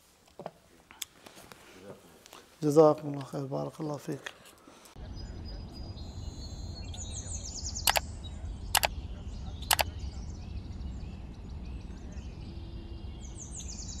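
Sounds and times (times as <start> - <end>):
small birds chirping: 2.7 - 14.0
steady low rumble: 5.0 - 13.8
sharp clicks: 7.8 - 8.1, 9.6 - 9.9.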